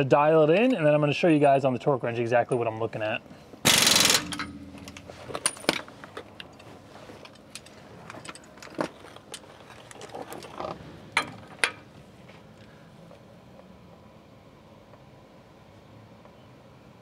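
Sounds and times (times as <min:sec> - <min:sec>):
sharp metal clanks: 0:03.6 - 0:05.9
hand tools clinking: 0:03.8 - 0:10.6.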